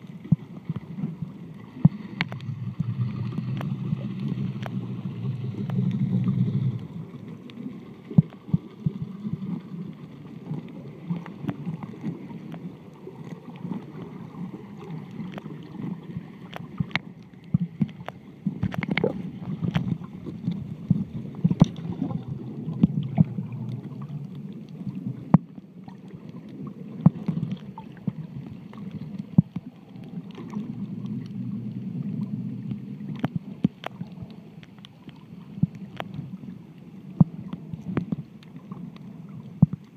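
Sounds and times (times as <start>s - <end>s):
muffled underwater rush: 0.0s - 39.9s
sharp clicks and pops: 1.8s - 8.6s, 16.4s - 23.8s.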